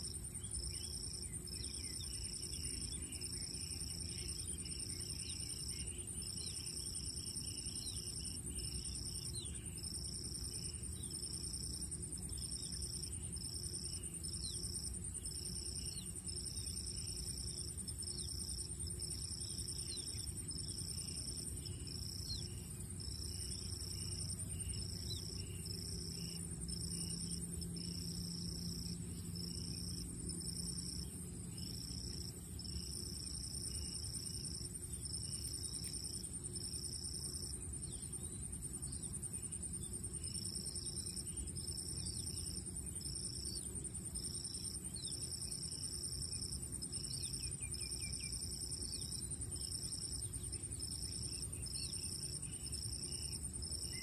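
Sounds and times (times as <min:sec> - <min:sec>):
insect trill: 0:00.0 - 0:54.0
insects droning: 0:00.0 - 0:54.0.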